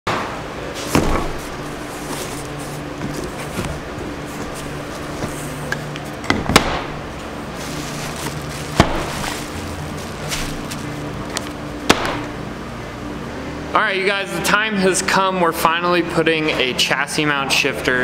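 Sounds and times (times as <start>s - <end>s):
paper and bubble wrap rustling: 0.8s - 5.8s, 7.4s - 11.7s.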